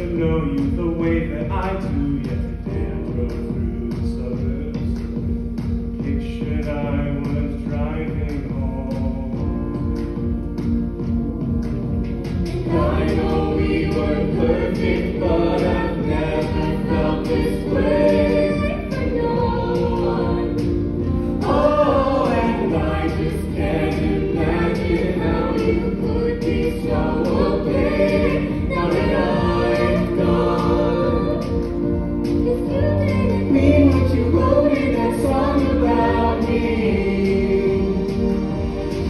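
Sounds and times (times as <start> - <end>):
instrumental accompaniment with beat: 0.0 - 39.0
choir singing: 12.3 - 39.0.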